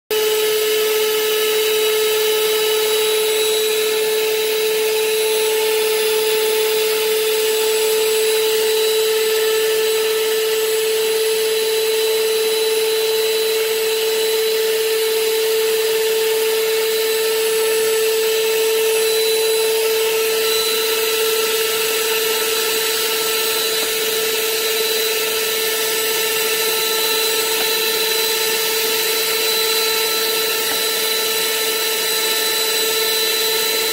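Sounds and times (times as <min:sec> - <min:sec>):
stand mixer motor whining: 0:00.1 - 0:33.9.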